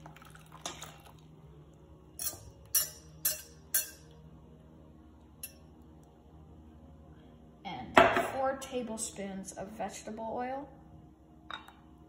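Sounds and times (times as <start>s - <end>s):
kitchenware clinking: 2.2s - 4.1s.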